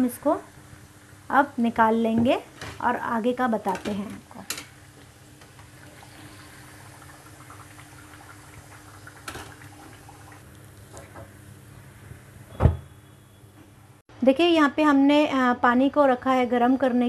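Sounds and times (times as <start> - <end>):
loud thump: 12.5 - 12.9.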